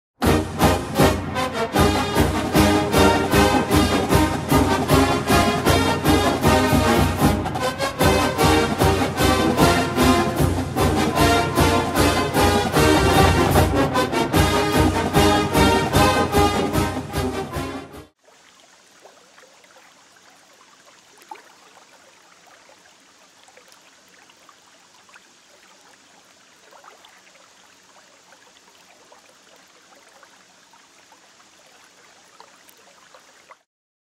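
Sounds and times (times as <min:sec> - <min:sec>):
music: 0:00.2 - 0:18.2
small waterfall trickling: 0:18.1 - 0:33.7
water drips: 0:18.2 - 0:33.7.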